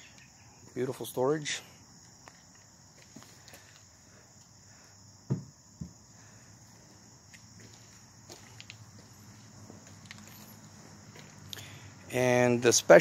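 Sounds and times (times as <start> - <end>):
insects chirring: 0.0 - 13.0
wooden cabinet doors thudding shut: 5.3 - 5.9.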